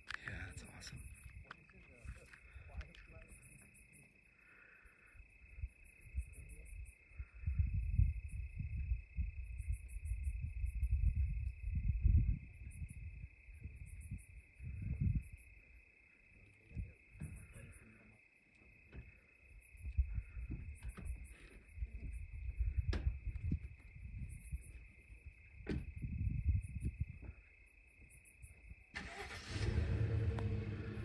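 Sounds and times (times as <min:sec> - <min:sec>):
pulsed insect chirping: 0:00.0 - 0:29.6
night insect chorus drone: 0:00.0 - 0:31.0
low rumble: 0:29.5 - 0:31.0.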